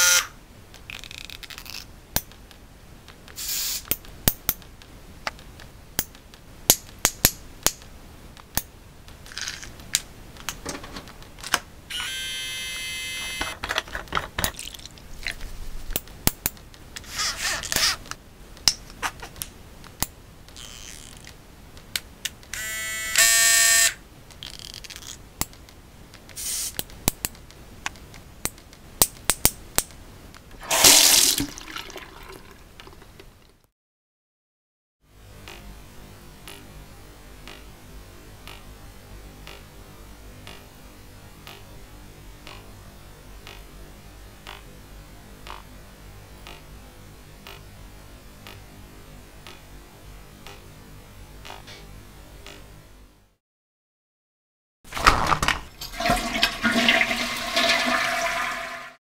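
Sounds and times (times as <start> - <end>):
electric shaver buzzing: 0.0 - 0.3, 11.9 - 13.5, 22.5 - 24.0.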